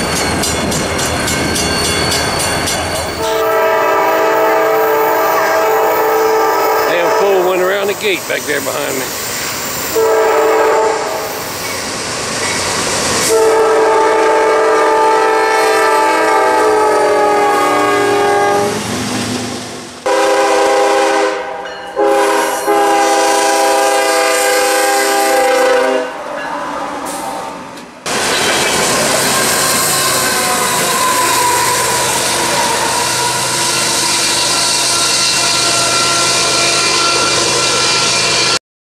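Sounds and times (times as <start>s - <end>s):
thin high tones: 0.0s - 3.3s
steel wheels rolling on rail: 0.0s - 16.5s, 26.1s - 38.6s
freight train rumbling: 0.0s - 38.6s
locomotive air horn: 3.2s - 9.0s, 9.9s - 11.5s, 13.2s - 18.8s, 20.0s - 26.2s, 29.0s - 38.6s.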